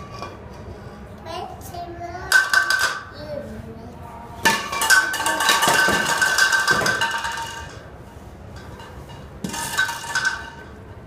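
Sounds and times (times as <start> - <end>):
plastic toy pins clattering on tile: 2.3 - 3.0, 4.5 - 7.8.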